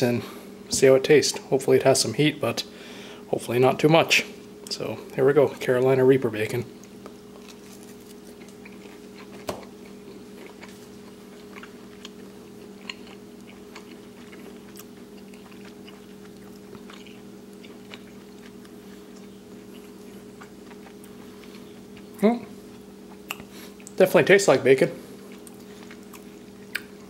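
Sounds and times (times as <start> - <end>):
steady low hum: 0.0 - 27.0
person chewing crispy bacon: 6.7 - 24.0, 25.0 - 27.0.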